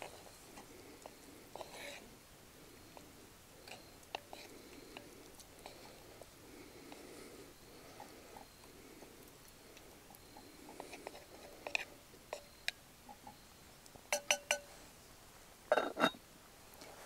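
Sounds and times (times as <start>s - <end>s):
cast-iron lid clanking: 14.1s - 14.7s, 15.7s - 16.2s.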